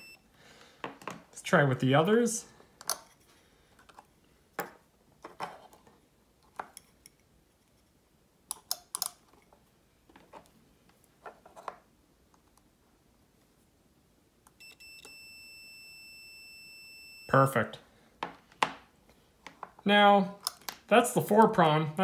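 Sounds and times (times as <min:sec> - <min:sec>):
multimeter continuity beep: 0:00.0 - 0:00.2, 0:14.6 - 0:17.5.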